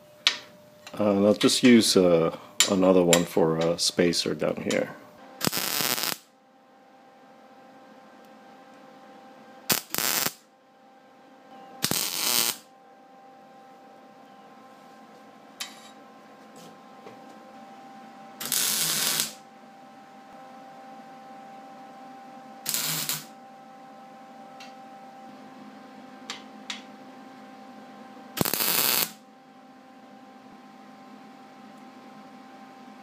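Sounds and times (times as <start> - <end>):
welder arc bursts: 5.4 - 6.3, 9.7 - 10.4, 11.8 - 12.7, 18.4 - 19.4, 22.6 - 23.3, 28.4 - 29.2.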